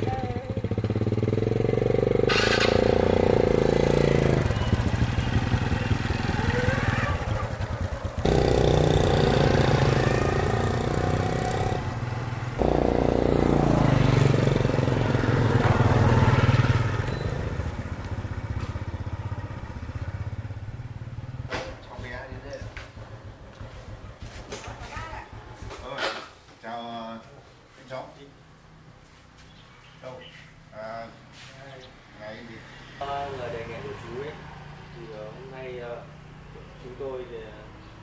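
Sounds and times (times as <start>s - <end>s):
small motorbike engines: 0.0s - 26.6s, 29.1s - 38.0s.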